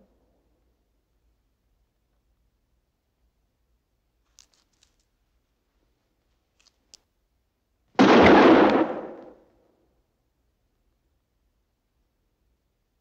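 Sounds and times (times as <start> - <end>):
revolver shot: 8.0 - 9.4.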